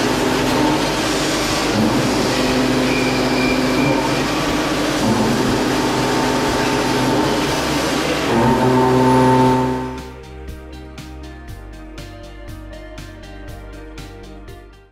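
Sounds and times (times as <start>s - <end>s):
low even hum: 0.0s - 10.2s
milling machine cutting metal: 0.0s - 10.2s.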